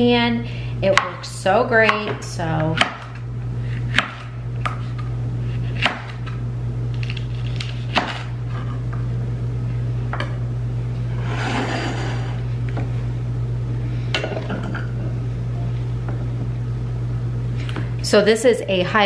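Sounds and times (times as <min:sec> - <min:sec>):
steady low hum: 0:00.0 - 0:19.0
cutting board scraping countertop: 0:11.1 - 0:12.4.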